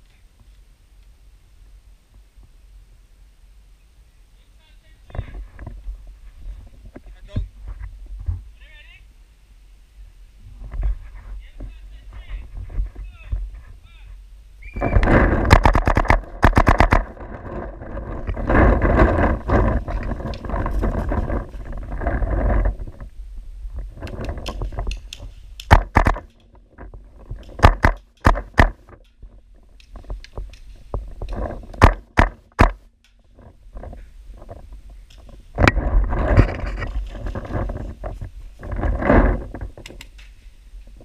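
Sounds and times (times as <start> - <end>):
rustling and knocking: 5.1 - 8.5, 14.8 - 23.1, 23.7 - 41.0
paintball markers firing: 15.5 - 17.1, 24.4 - 26.4.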